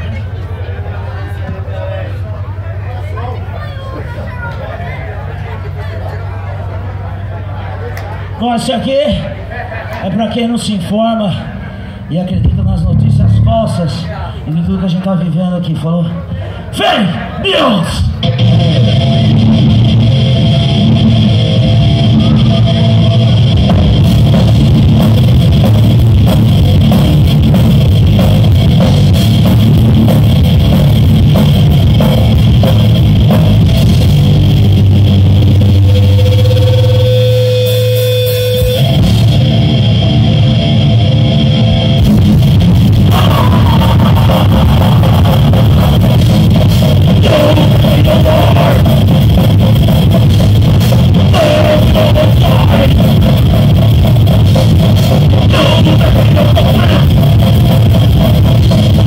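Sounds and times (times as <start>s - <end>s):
bass guitar: 0.0s - 15.3s, 16.5s - 59.0s
electric guitar: 18.1s - 59.0s
drum kit: 18.2s - 59.0s.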